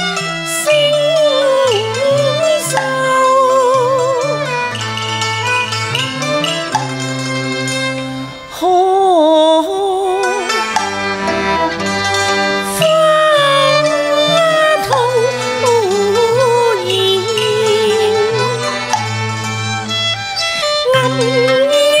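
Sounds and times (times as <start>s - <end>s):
bowed strings: 0.0s - 22.0s
plucked lute: 0.0s - 22.0s
woman singing opera with vibrato: 0.5s - 4.5s, 8.5s - 10.7s, 12.6s - 18.7s, 20.8s - 22.0s.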